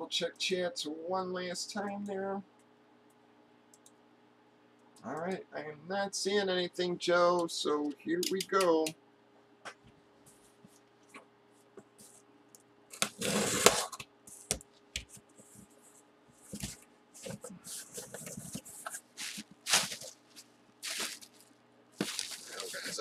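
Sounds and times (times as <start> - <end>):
packing tape ripping: 12.9 - 14.0, 19.2 - 23.0
cardboard scraping: 13.0 - 14.4, 16.4 - 21.4, 22.0 - 23.0
plastic wrap crinkling: 16.5 - 23.0.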